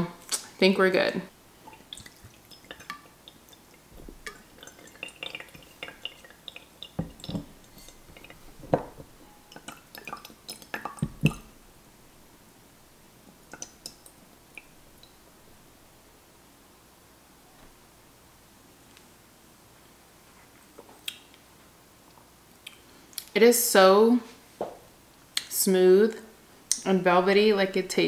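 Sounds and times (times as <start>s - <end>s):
heavy thuds: 3.9s - 4.3s, 7.0s - 9.2s.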